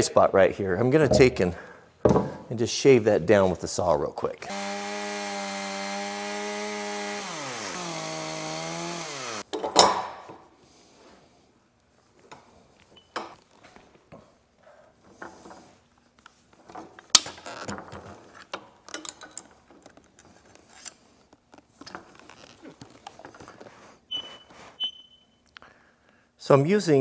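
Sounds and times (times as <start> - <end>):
tools clicking and rattling: 17.0 - 21.0.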